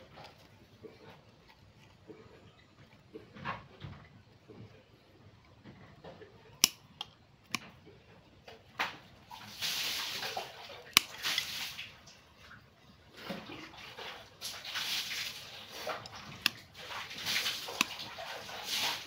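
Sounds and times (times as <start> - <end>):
rustling of roots and soil: 0.0 - 19.0
root cutters snipping: 6.6 - 7.8, 10.1 - 11.6, 15.8 - 18.2.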